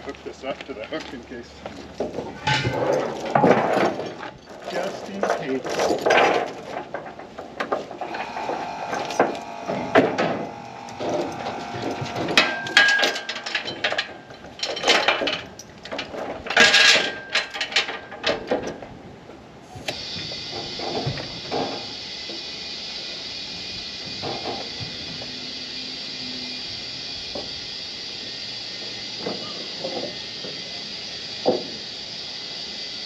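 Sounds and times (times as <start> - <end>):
metallic clanks of tow rigging: 8.1 - 18.8.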